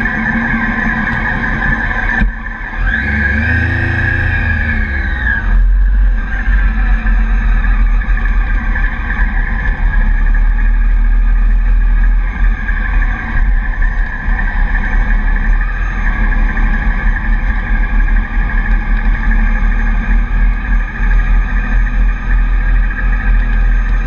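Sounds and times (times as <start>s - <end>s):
heavy low rumble: 0.0s - 24.0s
motorcycle engine at speed: 0.0s - 24.0s.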